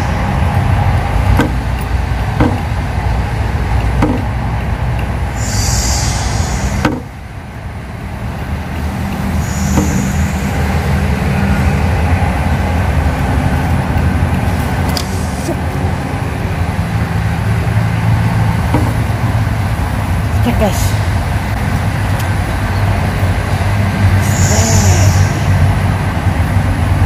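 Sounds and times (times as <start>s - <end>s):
low engine rumble: 0.0s - 27.0s
short hisses: 5.4s - 7.1s, 9.4s - 10.9s.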